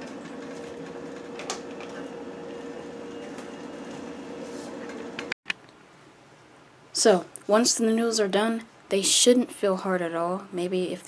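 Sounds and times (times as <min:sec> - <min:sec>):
kitchen appliance humming: 0:00.0 - 0:05.4.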